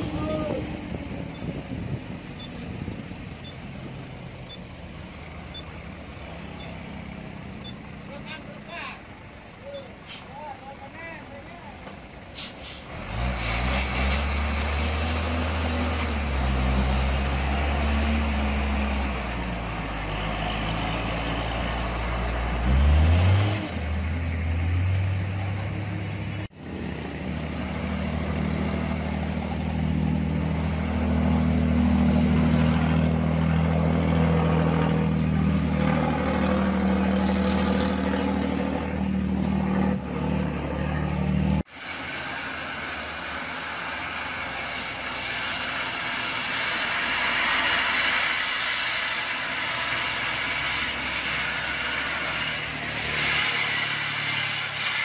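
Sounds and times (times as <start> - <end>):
passing traffic drone: 0.0 - 55.0
truck diesel engine revving: 12.4 - 55.0.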